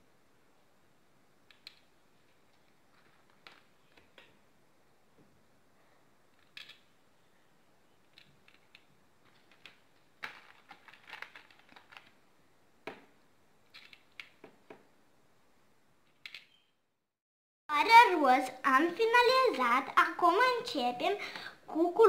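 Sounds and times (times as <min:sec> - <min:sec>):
plastic beads clicking on pegboard: 0:01.4 - 0:04.4, 0:06.3 - 0:07.0, 0:08.0 - 0:12.2, 0:13.7 - 0:14.8.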